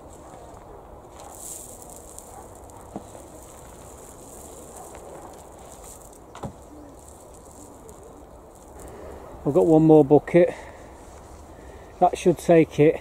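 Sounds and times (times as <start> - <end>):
soil rustling from bucket: 0.0 - 10.3.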